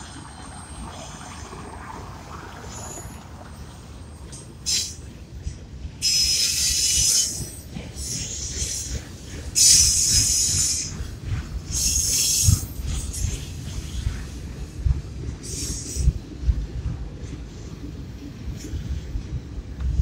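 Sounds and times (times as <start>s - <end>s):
freight train rumbling past: 0.0s - 20.0s
steel wheels squealing: 2.6s - 5.1s, 6.0s - 11.0s, 11.7s - 13.4s.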